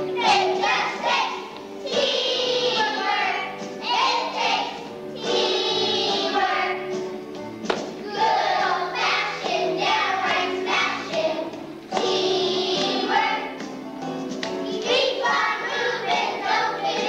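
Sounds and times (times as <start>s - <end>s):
children's choir singing: 0.0s - 7.1s, 8.0s - 13.8s, 14.6s - 17.0s
musical accompaniment: 0.0s - 17.0s
sharp knock: 7.6s - 7.9s.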